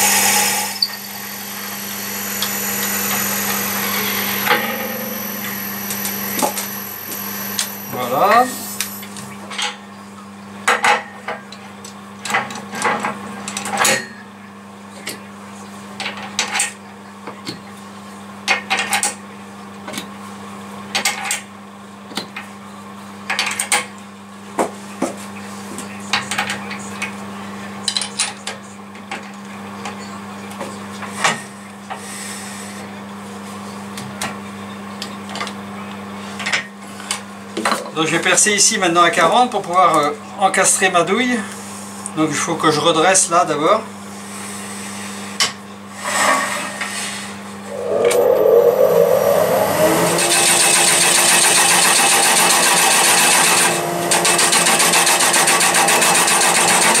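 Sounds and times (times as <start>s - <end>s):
steady low hum: 0.0s - 9.0s, 47.6s - 52.1s.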